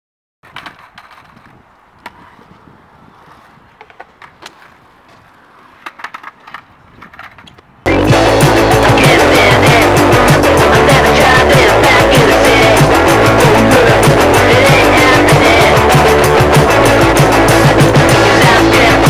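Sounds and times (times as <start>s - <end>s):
skateboard clacking on concrete: 0.4s - 2.6s, 3.2s - 7.8s
loud music: 7.9s - 19.0s.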